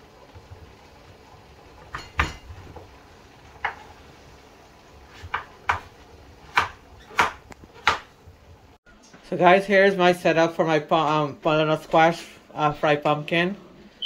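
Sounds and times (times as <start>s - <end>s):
knife chopping on wooden board: 5.1s - 5.9s, 6.5s - 8.1s.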